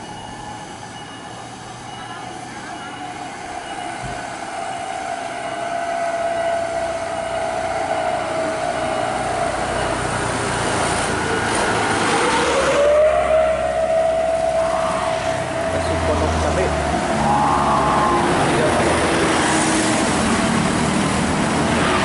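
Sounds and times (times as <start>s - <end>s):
truck and coach engines labouring: 0.0s - 22.0s
truck passing by: 6.2s - 22.0s.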